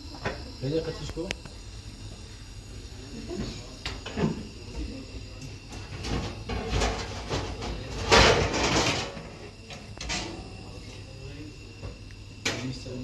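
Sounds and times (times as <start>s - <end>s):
kitchen knocks and rustles: 5.9s - 9.2s.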